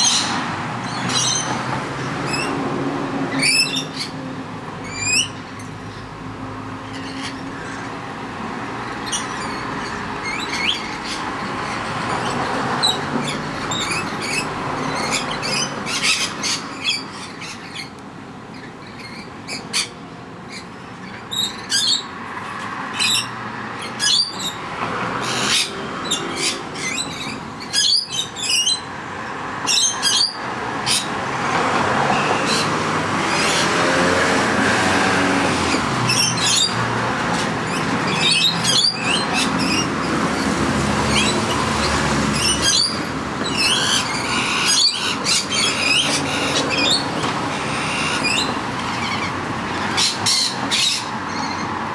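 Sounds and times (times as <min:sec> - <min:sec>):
lorikeets screeching: 0:00.0 - 0:06.2, 0:06.8 - 0:08.1, 0:08.8 - 0:22.2, 0:22.8 - 0:31.3, 0:31.9 - 0:51.9.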